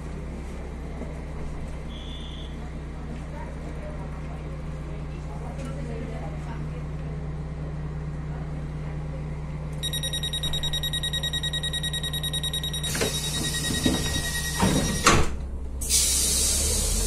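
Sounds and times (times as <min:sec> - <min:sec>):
door warning tone: 0:09.8 - 0:15.3
train door sliding shut: 0:12.9 - 0:17.0
hiss: 0:15.8 - 0:17.0.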